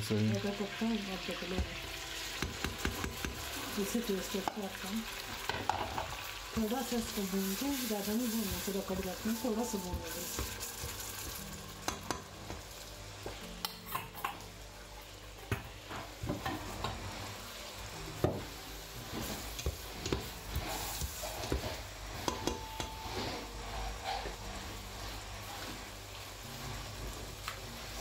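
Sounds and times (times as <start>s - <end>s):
butter sizzling: 0.0s - 13.4s, 16.1s - 28.0s
spatula scraping steel pot: 20.0s - 25.9s.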